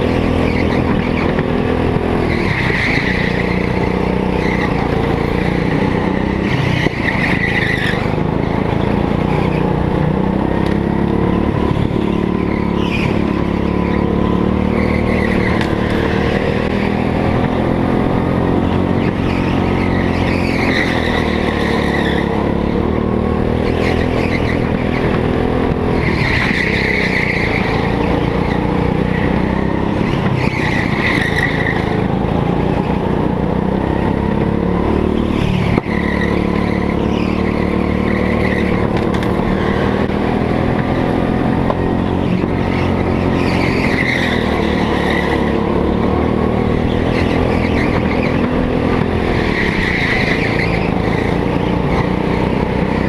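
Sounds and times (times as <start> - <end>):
go-kart engine revving: 0.0 - 53.0
tyres squealing on floor: 49.3 - 52.0.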